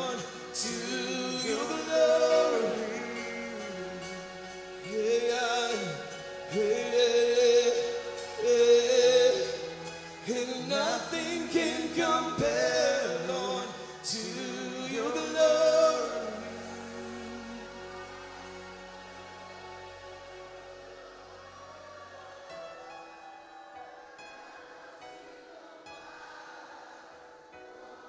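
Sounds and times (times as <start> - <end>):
man singing gospel: 0.0 - 19.9.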